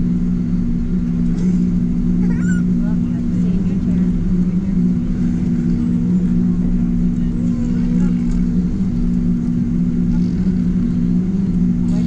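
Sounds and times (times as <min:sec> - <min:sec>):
jet engine cabin drone: 0:00.0 - 0:12.0.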